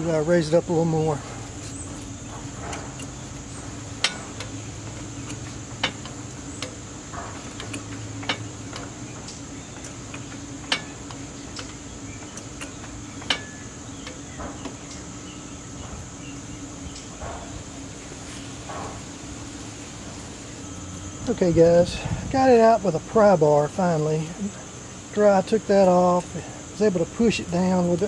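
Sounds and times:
steady high buzz: 0.0 - 28.0
hand tools clicking and knocking: 1.9 - 15.0.

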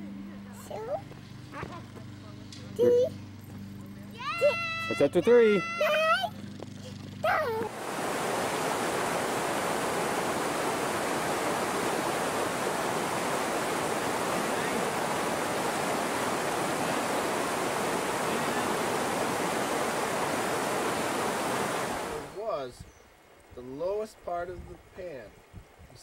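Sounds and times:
river rushing over rocks: 7.7 - 22.4.

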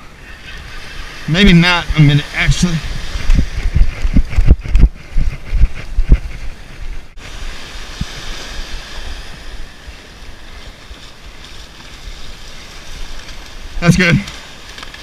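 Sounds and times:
small surf washing up beach: 0.0 - 4.4, 6.5 - 15.0
wind buffeting microphone: 0.0 - 15.0.

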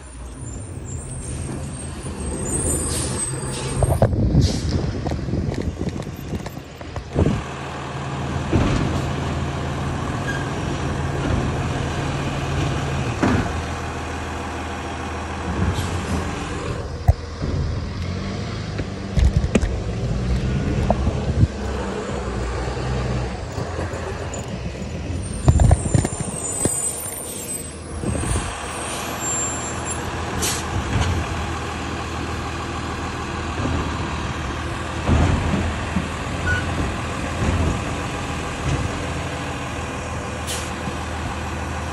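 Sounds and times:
garbage truck diesel engine: 0.0 - 41.9
sharp knocks and clanks: 8.5 - 9.2, 12.6 - 13.7, 35.0 - 38.0.

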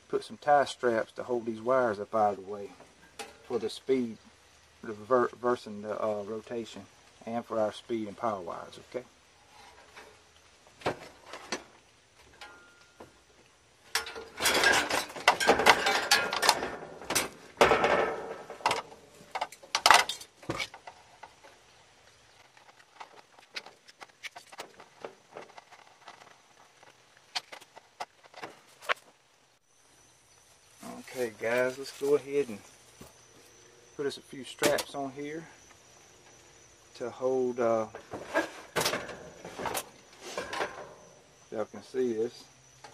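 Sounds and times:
rustling and light clatter: 9.3 - 29.3, 37.8 - 41.3.

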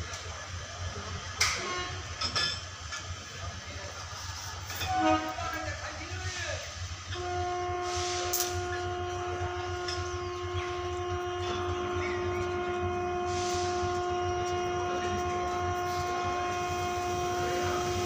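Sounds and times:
locomotive electrical hum: 0.0 - 18.0.

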